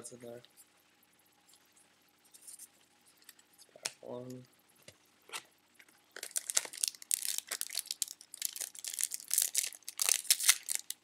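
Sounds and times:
foil wrapper tearing and crinkling: 6.2s - 11.0s.

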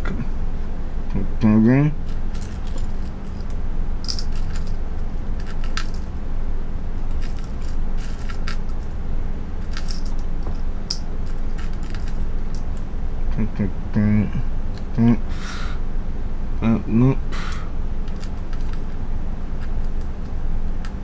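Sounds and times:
steady low hum: 0.0s - 21.0s
small hard parts clicking: 2.0s - 6.1s, 7.0s - 9.0s, 9.6s - 12.8s, 18.0s - 19.0s.

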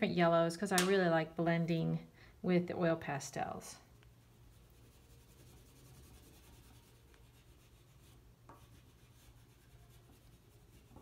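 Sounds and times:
pastel rubbing on paper: 4.2s - 11.0s.

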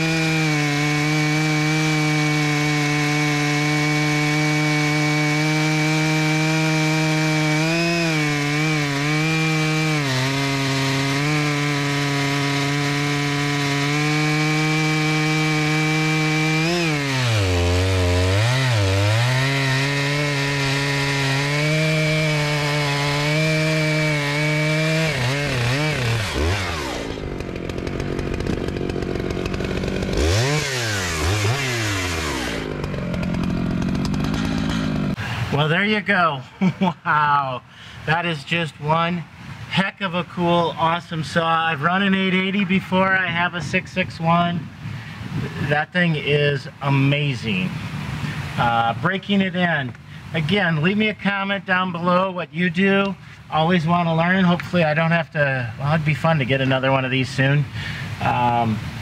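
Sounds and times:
chainsaw cutting log: 0.0s - 35.7s.

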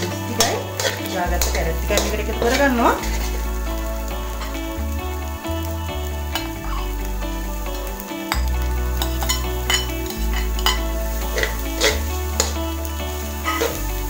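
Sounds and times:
background music: 0.0s - 14.0s
frying sizzle: 0.0s - 14.0s
metal spatula scraping a wok: 0.3s - 3.8s, 9.0s - 13.8s.

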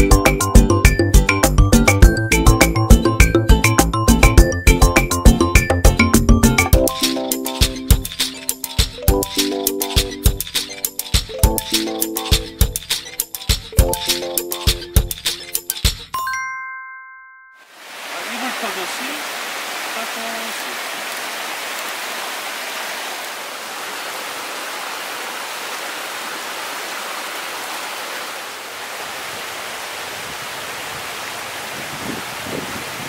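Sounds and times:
stream rushing over rocks: 17.7s - 33.0s.

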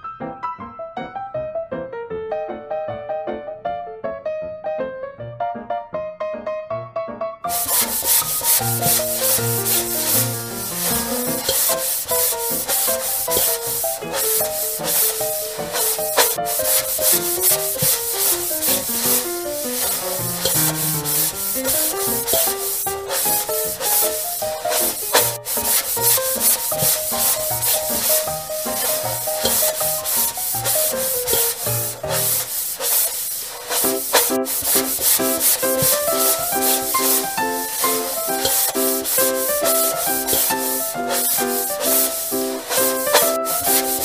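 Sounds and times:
light instrumental music: 7.5s - 32.4s, 34.0s - 44.0s
sponge scrubbing plastic: 7.5s - 44.0s.

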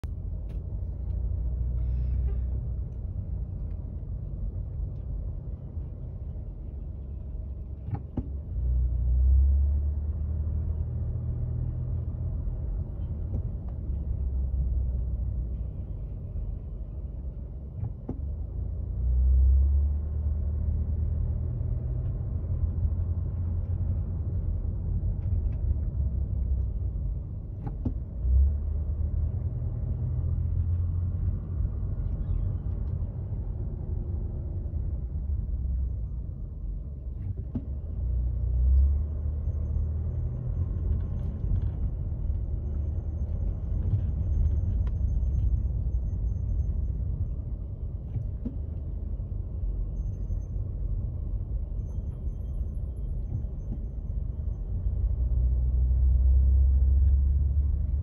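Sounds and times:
car engine and tyres rumbling: 0.0s - 58.0s.

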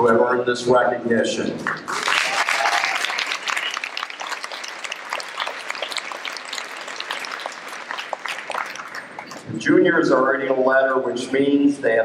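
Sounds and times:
audience clapping: 1.6s - 9.6s.

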